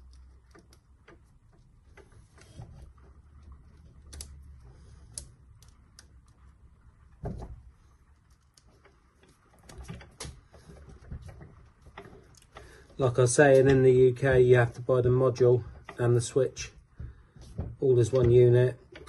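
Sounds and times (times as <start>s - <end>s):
dull thump: 7.2s - 7.7s.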